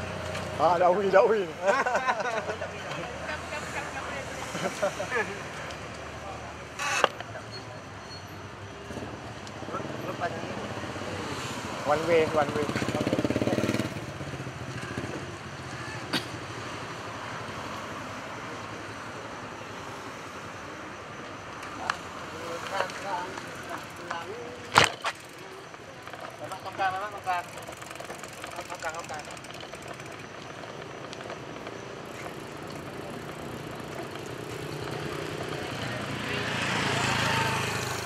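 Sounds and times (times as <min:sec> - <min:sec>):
street traffic hum: 0:00.0 - 0:38.0
motor vehicle engine hum: 0:22.6 - 0:38.0
bicycle tyres hissing: 0:32.0 - 0:35.0.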